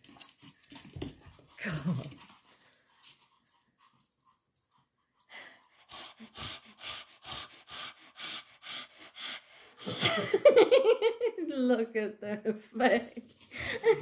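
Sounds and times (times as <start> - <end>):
dogs panting: 0.0 - 10.3.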